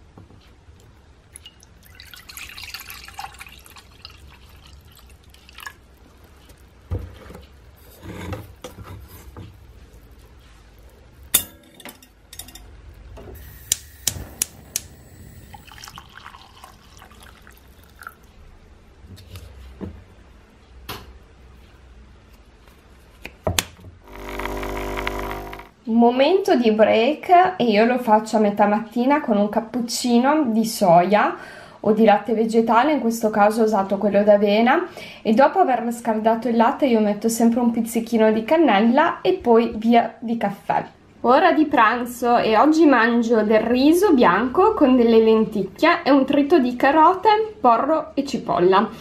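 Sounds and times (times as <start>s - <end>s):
milk pouring into metal pot: 1.4s - 6.6s, 15.3s - 18.3s.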